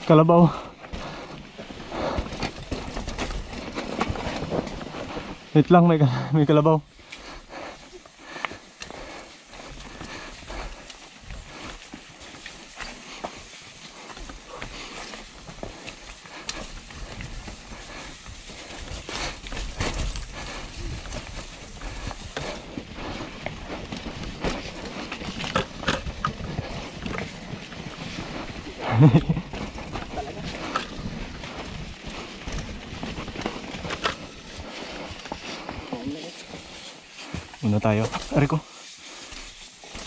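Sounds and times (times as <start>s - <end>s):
bike tyres crunching over dirt: 0.0s - 40.0s
bike rattling clicks and knocks: 0.8s - 5.4s, 8.3s - 35.6s.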